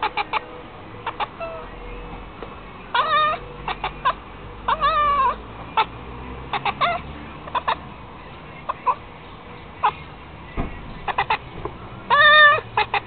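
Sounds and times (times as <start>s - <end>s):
cat chirping and chattering: 0.0s - 1.7s, 2.9s - 7.9s, 11.0s - 13.0s.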